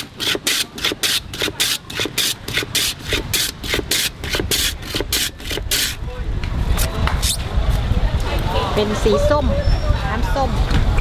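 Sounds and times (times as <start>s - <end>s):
ice scraping across a blade: 0.0s - 6.0s.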